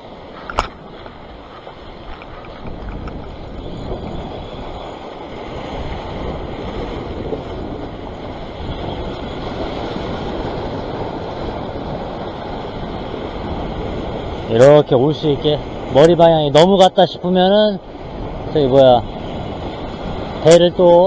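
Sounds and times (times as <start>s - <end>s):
sea waves washing over rocks: 0.0s - 21.0s
wind on microphone: 0.0s - 21.0s.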